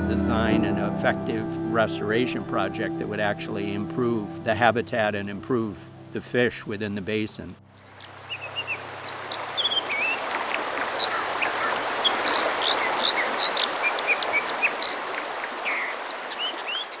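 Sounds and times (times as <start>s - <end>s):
creek flowing: 0.0s - 17.0s
small birds chirping: 7.7s - 17.0s.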